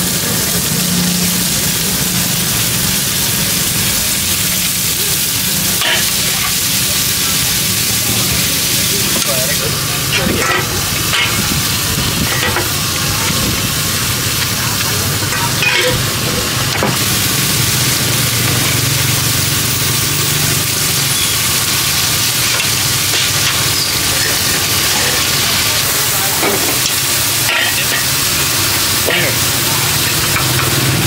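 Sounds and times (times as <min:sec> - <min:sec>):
noodles sizzling in a wok: 0:00.0 - 0:31.0
metal utensils clinking on wok: 0:05.6 - 0:06.7, 0:09.0 - 0:12.9, 0:14.4 - 0:17.0, 0:22.4 - 0:31.0.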